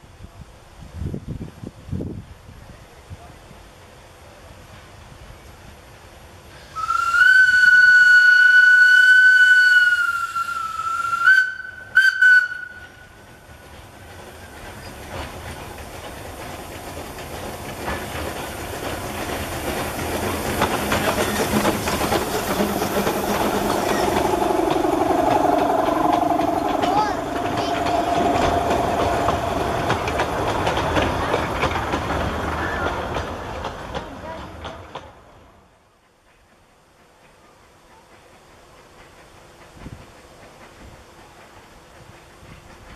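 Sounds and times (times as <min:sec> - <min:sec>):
train rumble and wheel clatter: 0:00.0 - 0:42.9
locomotive whistle: 0:06.8 - 0:13.2.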